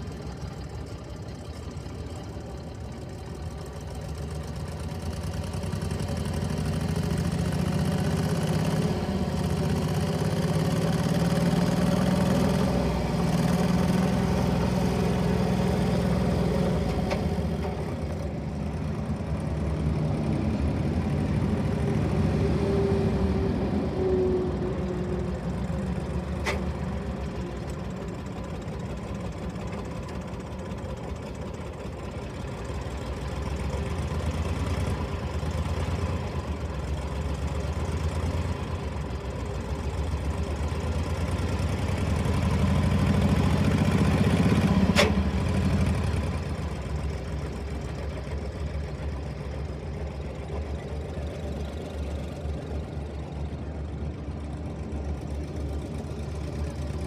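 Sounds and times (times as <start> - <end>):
diesel tractor engine running: 0.0 - 57.0
sharp click: 44.9 - 45.2.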